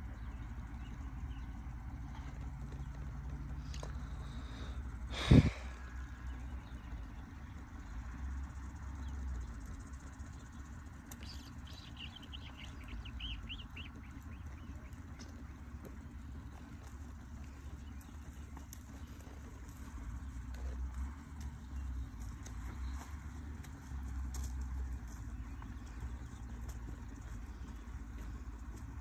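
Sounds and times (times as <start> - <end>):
low outdoor rumble: 0.0 - 29.0.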